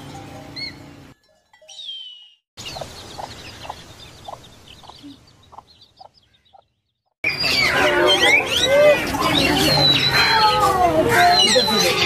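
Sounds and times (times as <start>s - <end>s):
low clucking bird notes: 1.6s - 7.1s
lovebirds chattering: 1.8s - 12.0s.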